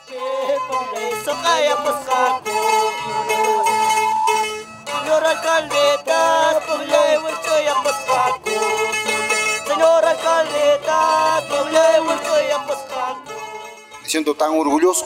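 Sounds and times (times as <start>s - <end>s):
wooden flutes melody: 0.0s - 7.4s
plucked strings: 0.0s - 15.0s.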